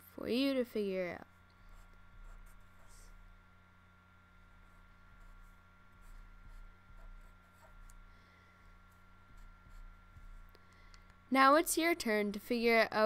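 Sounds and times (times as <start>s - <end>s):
low steady hum: 0.0s - 13.0s
marker writing on paper: 1.6s - 3.3s, 4.4s - 8.1s, 8.7s - 10.5s.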